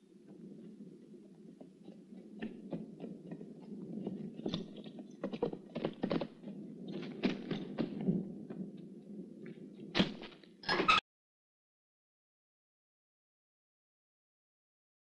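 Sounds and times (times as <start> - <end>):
horse hoofbeats galloping: 0.0 - 10.4
man running footsteps on dirt: 1.0 - 8.7.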